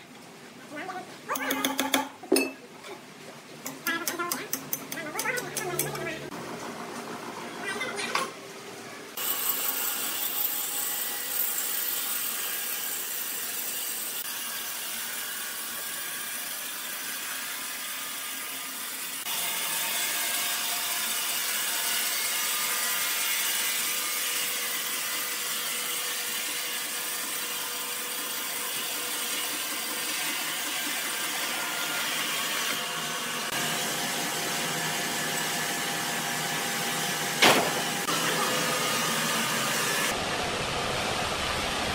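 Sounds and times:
band sawmill sawing log: 9.2s - 41.9s.

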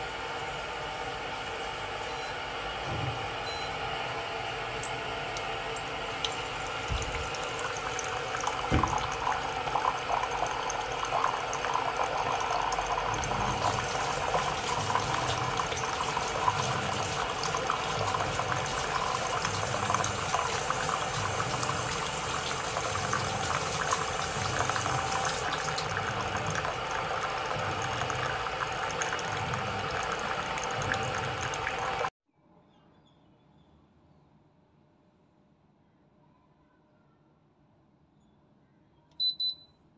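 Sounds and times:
hot water pouring into mug: 4.9s - 32.1s.

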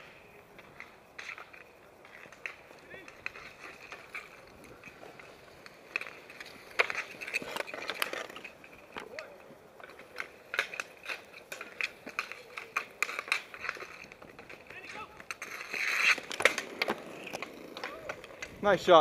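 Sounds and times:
hockey sticks clacking on asphalt: 0.0s - 19.0s.

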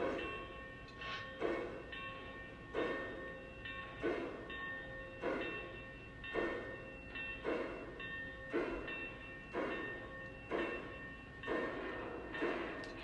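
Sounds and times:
model train steam chuffs: 3.8s - 4.6s, 6.3s - 6.8s, 7.4s - 13.0s.

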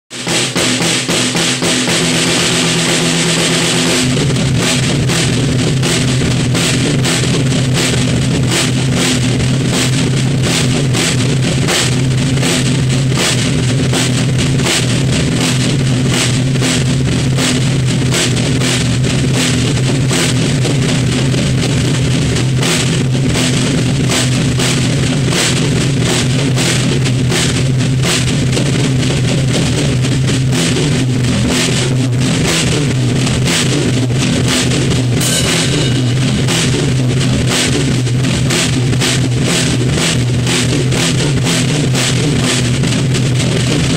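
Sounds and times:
drum kit played fast: 0.0s - 43.9s
rock guitar backing: 31.7s - 39.4s
cymbals ringing: 35.2s - 37.9s.

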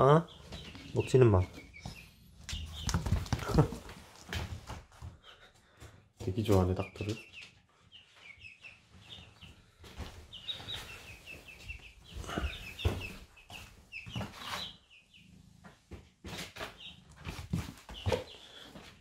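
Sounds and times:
chicks peeping: 0.0s - 19.0s.

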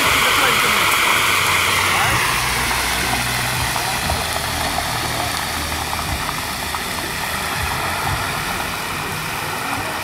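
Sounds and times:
fish deep-frying in hot oil: 0.0s - 10.0s
low rumble: 1.3s - 9.6s.

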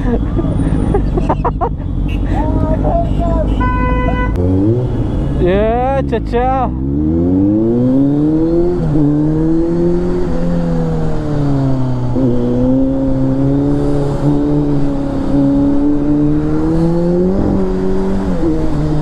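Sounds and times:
motorcycle engine accelerating: 6.7s - 19.0s.

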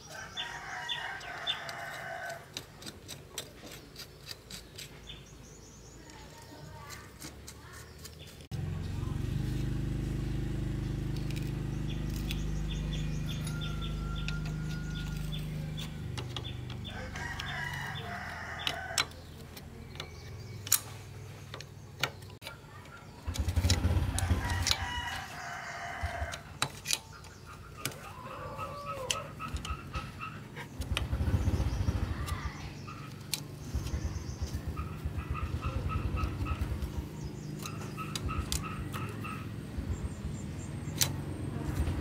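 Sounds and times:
rooster crowing: 0.0s - 2.5s, 13.3s - 15.6s, 16.8s - 19.2s, 24.2s - 26.5s, 27.9s - 29.5s
sharp clicks and knocks: 13.4s - 17.8s, 18.6s - 25.3s.

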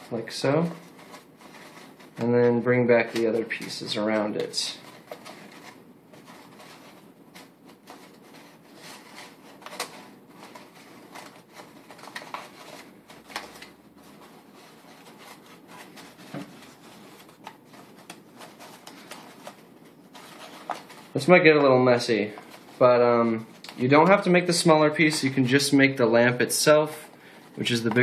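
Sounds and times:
stiff paper rustling and clicking: 3.0s - 22.8s.

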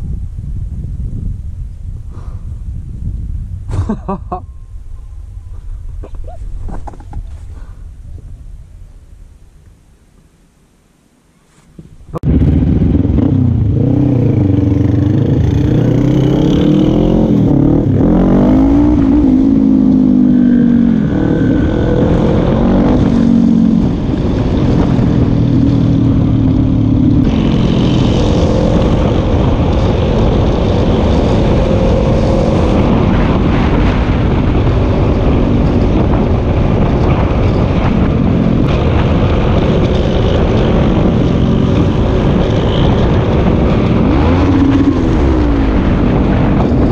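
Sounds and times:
rushing noise: 12.0s - 46.9s
motorcycle engine revving: 12.2s - 46.9s.

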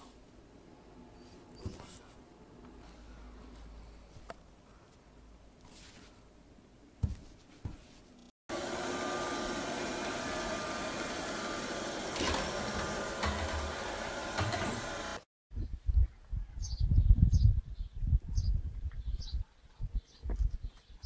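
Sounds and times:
robot vacuum cleaner whirring: 8.5s - 15.2s.

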